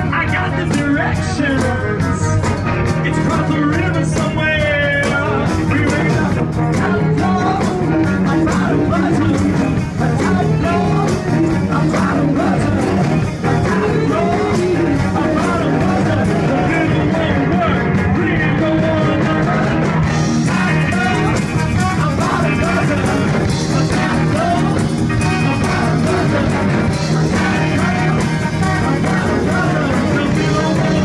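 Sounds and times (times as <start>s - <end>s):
bass: 0.0s - 31.0s
drums: 0.0s - 31.0s
electric guitar: 0.0s - 31.0s
man singing: 0.0s - 31.0s
saxophones: 19.3s - 31.0s.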